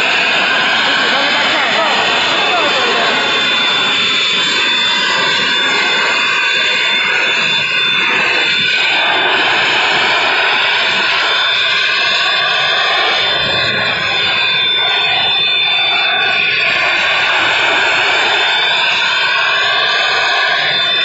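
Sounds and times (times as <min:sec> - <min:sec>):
thin high whine: 0:00.0 - 0:16.7.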